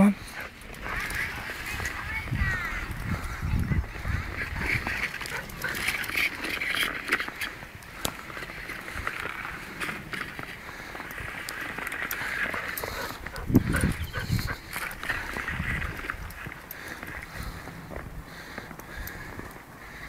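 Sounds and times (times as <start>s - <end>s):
small clicks and crunches: 4.0s - 20.0s.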